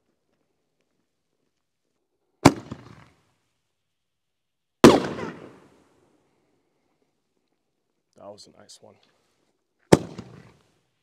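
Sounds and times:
firework launch bang: 4.8s - 5.7s.

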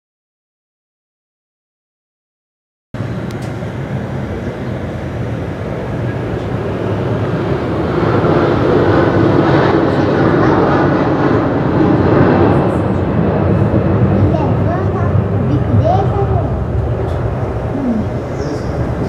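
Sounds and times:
jet engine rumble at takeoff: 3.0s - 19.0s.

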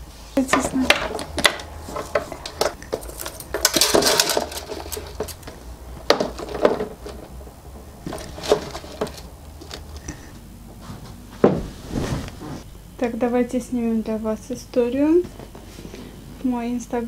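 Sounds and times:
handbags rustling: 0.8s - 10.2s
metal clasps clinking: 2.0s - 5.6s.

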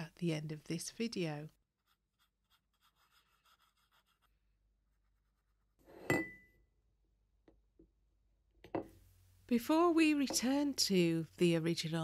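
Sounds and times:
paintbrush strokes on paper: 1.0s - 5.9s.

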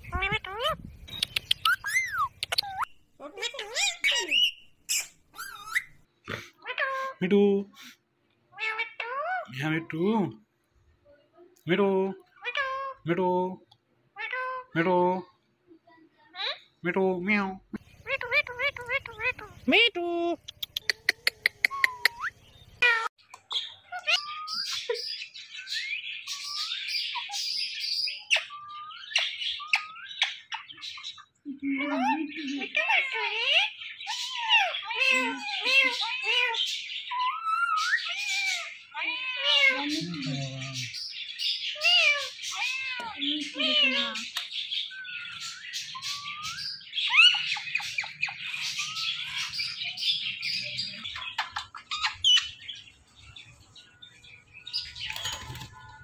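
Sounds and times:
parakeet chirps and squawks: 0.0s - 7.2s, 8.5s - 9.6s, 12.4s - 13.0s, 14.1s - 14.8s, 17.8s - 19.8s, 20.5s - 56.0s.

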